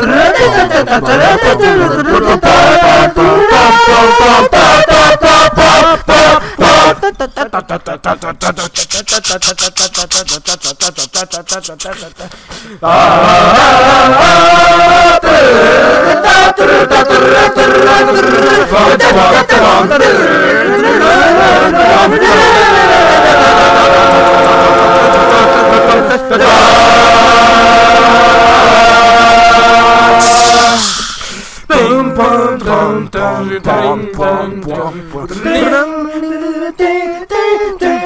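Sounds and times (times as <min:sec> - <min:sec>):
a cappella singing: 0:00.0 - 0:38.0.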